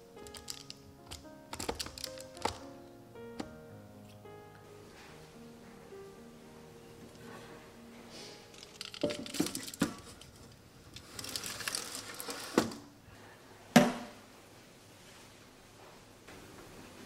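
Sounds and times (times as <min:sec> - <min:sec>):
foil crinkling: 0:00.2 - 0:02.6, 0:08.5 - 0:12.8.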